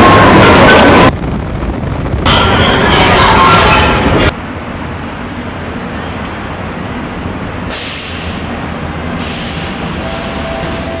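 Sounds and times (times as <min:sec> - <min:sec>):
road traffic din: 0:00.0 - 0:11.0
bus air brakes hissing: 0:07.6 - 0:11.0.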